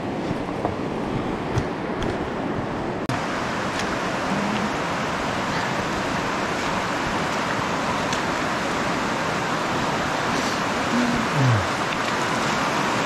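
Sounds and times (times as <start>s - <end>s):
river flowing over rocks: 3.1s - 13.0s.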